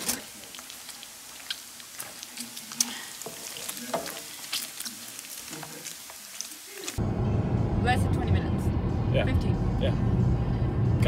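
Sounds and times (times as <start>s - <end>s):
bacon sizzling in a pan: 0.0s - 7.0s
wooden utensil stirring: 0.0s - 7.0s.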